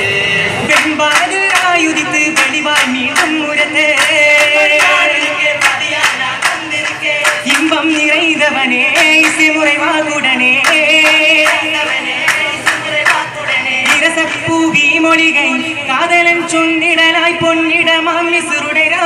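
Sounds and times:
men singing: 0:00.5 - 0:16.7
hand-clapping: 0:00.7 - 0:08.3, 0:08.9 - 0:09.6, 0:10.6 - 0:14.5.

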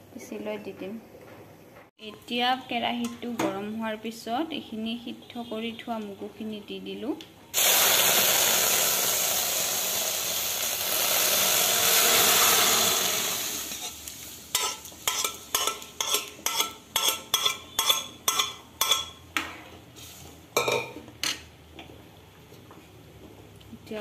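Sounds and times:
beans sizzling in a metal pan: 0:07.6 - 0:19.1.

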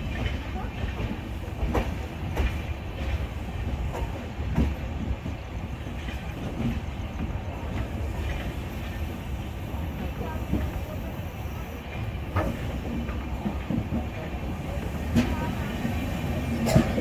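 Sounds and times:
train rumbling on track: 0:00.0 - 0:17.0
wheels clicking over rail joints: 0:11.9 - 0:17.0.

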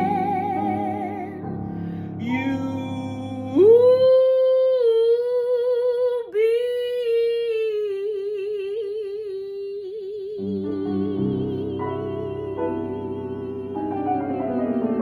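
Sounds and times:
grand piano chords: 0:00.0 - 0:04.6, 0:10.4 - 0:15.0.

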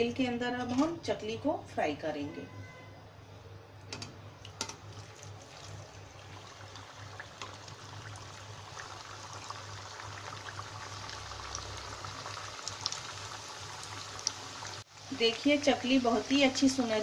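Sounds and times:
hot oil sizzling and bubbling: 0:04.4 - 0:17.0.

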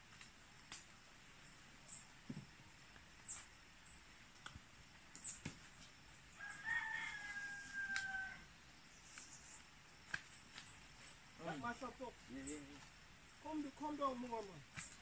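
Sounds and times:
rooster crowing: 0:06.3 - 0:08.5.

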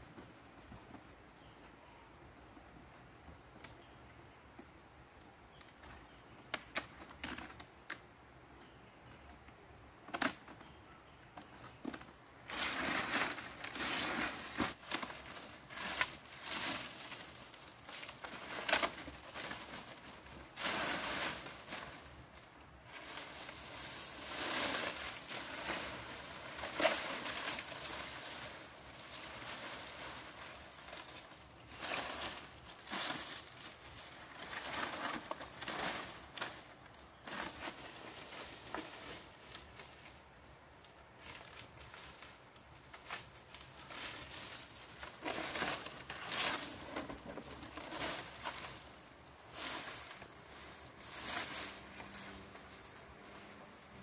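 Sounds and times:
rustling of dry material: 0:12.4 - 0:39.8, 0:43.2 - 0:53.8.

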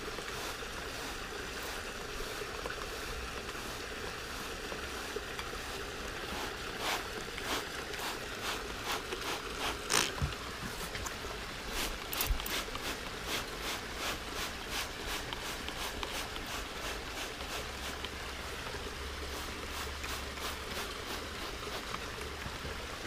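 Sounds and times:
steady background hiss: 0:00.0 - 0:23.0
spray bottle squirts: 0:06.3 - 0:10.3, 0:11.7 - 0:18.0.

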